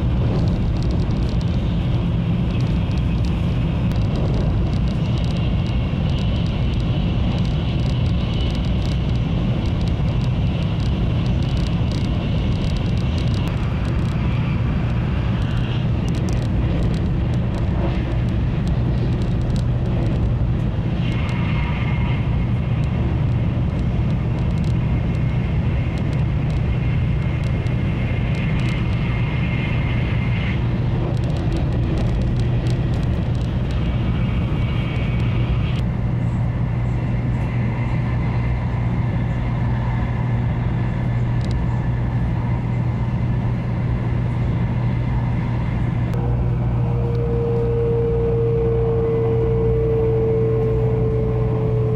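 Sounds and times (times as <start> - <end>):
train running at speed: 0.0 - 51.9.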